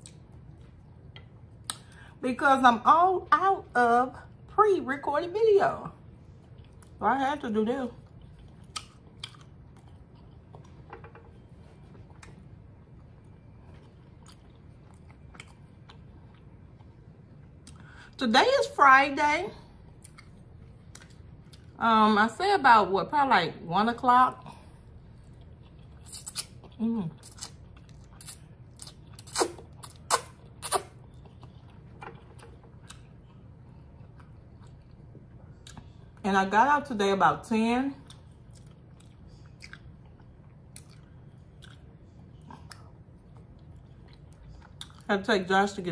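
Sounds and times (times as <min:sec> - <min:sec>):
person chewing food: 0:00.0 - 0:02.2, 0:06.0 - 0:07.0, 0:08.0 - 0:18.0, 0:19.7 - 0:21.8, 0:24.5 - 0:36.2, 0:38.0 - 0:45.1.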